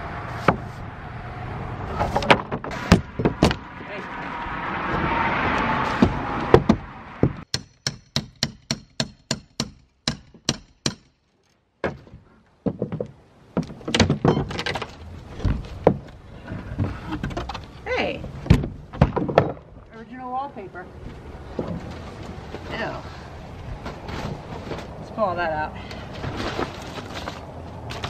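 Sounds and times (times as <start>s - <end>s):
boards knocking and creaking: 1.9s - 3.9s, 5.8s - 7.5s, 11.8s - 19.8s, 21.5s - 22.7s
wood cracking and scraping: 1.9s - 4.0s, 11.3s - 20.0s, 26.0s - 28.0s.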